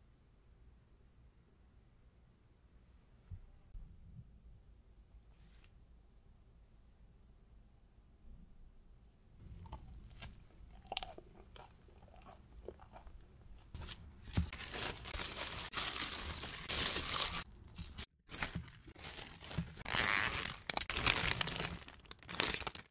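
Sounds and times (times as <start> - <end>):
thin paper crinkling and rustling: 13.8 - 22.9
plastic zipper bag crinkling: 14.5 - 22.9.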